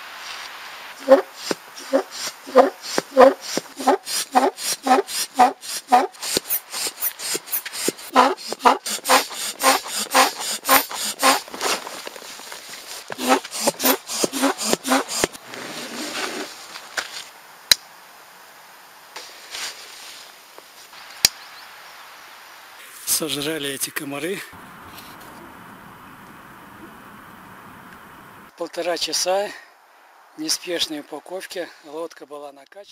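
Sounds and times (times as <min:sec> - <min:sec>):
air hiss: 0:00.0 - 0:17.2
foot pump puffs of air: 0:00.2 - 0:17.3.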